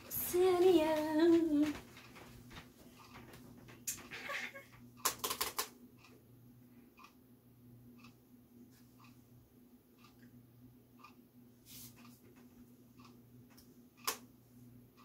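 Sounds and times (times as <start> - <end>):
girl laughing: 4.1 - 4.7.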